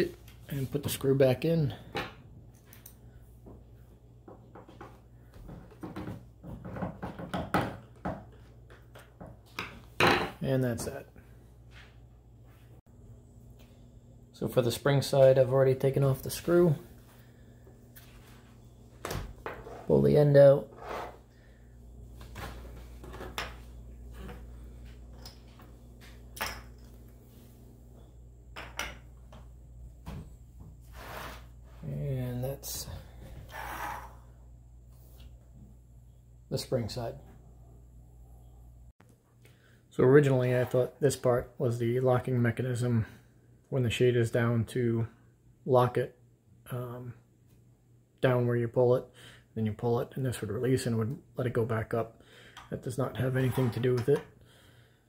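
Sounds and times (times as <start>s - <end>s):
low steady hum: 0.0s - 55.0s
sliding scrape: 20.7s - 21.2s, 30.8s - 31.5s.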